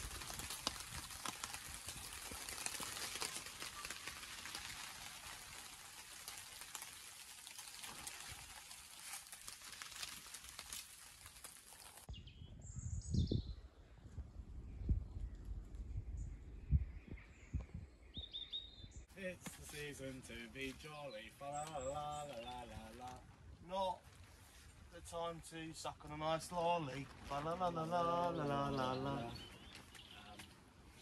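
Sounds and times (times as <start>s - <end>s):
crackling hiss: 0.0s - 12.1s
bird chirps: 16.0s - 19.1s.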